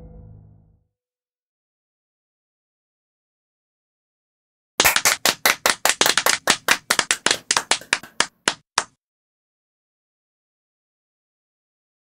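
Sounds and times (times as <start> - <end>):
hands clapping: 4.8 - 9.0.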